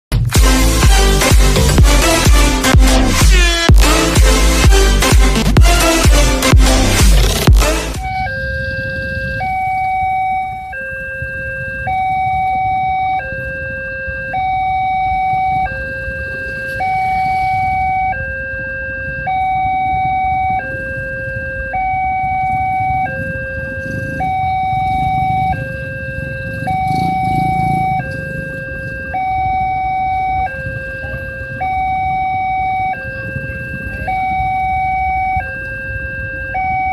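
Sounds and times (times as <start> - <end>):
intro music: 0.1 - 8.6
level crossing two-tone alarm: 0.4 - 36.9.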